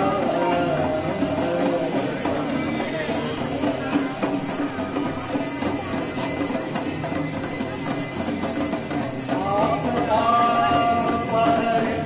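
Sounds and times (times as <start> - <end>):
devotional music: 0.0 - 5.7
hand bells ringing: 0.0 - 12.0.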